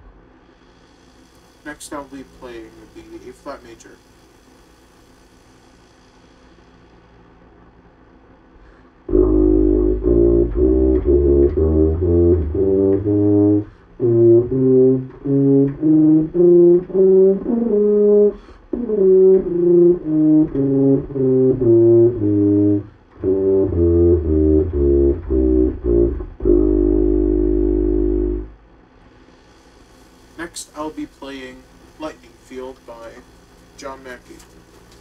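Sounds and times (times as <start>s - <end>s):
tuba playing a scale: 9.1s - 28.6s
player breathing: 18.2s - 18.8s.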